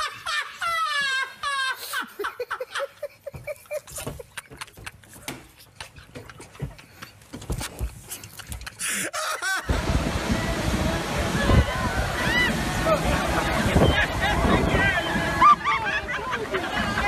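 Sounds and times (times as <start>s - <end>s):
high-pitched wavering laugh: 0.0s - 4.8s, 8.9s - 9.8s, 11.8s - 17.0s
people laughing hard: 0.0s - 4.9s, 8.9s - 9.8s, 11.7s - 17.0s.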